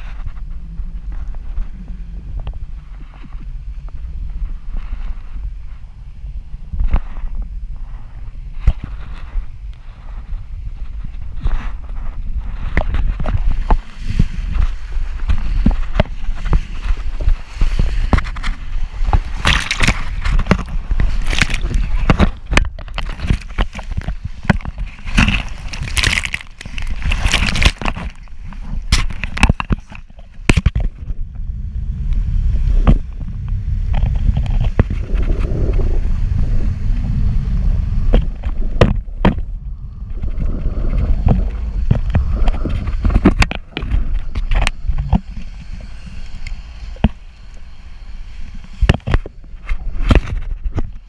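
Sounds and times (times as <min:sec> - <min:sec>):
wind rumble on microphone: 0:00.0 - 0:51.0
water splashing and churning: 0:11.9 - 0:31.2.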